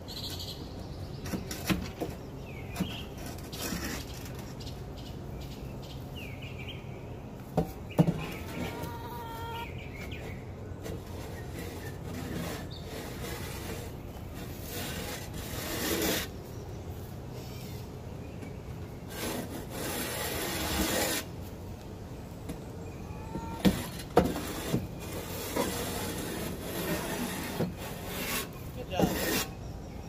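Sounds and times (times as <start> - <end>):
scraper scraping floor: 10.2 - 16.4, 19.1 - 21.3, 23.3 - 29.6.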